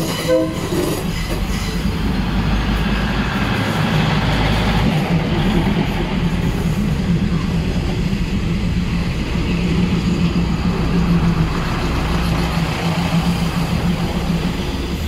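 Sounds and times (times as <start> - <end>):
diesel train engine running: 0.0 - 15.0.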